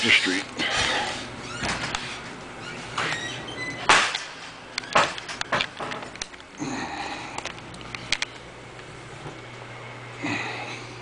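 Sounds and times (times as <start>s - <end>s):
sharp knocks and clicks: 3.8s - 6.5s.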